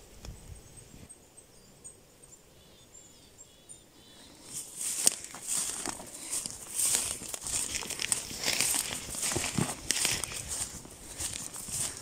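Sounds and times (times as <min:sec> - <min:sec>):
faint high bird chirps: 0:00.3 - 0:04.7
footsteps crunching through leaves: 0:04.4 - 0:12.0.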